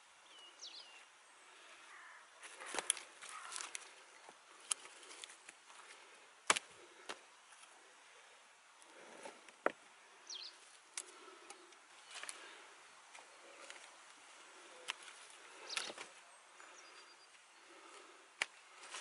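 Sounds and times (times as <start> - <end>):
dry twigs snapping: 2.4 - 3.9, 4.6 - 7.7, 10.9 - 12.4, 14.8 - 16.2, 18.4 - 19.0.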